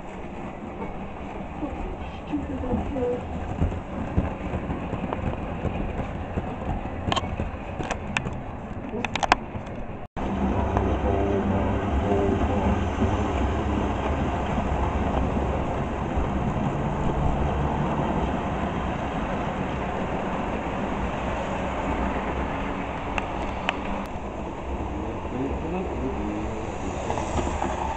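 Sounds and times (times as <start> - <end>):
model train running on track: 0.0 - 9.3, 10.2 - 27.9.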